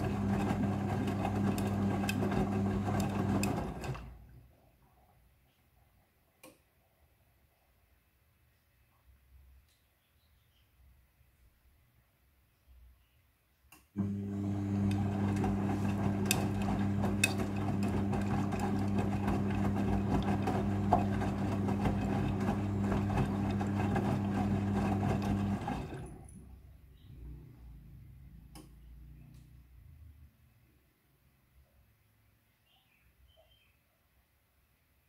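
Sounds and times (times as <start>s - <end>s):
washing machine motor hum: 0.0s - 4.2s, 14.0s - 26.5s.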